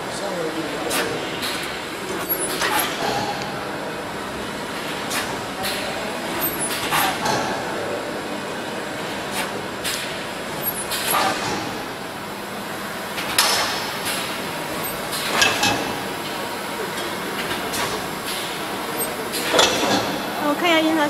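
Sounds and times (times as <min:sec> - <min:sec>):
machine mechanical noise: 0:00.0 - 0:21.0
sharp machine clacks: 0:09.3 - 0:12.0, 0:13.2 - 0:20.3.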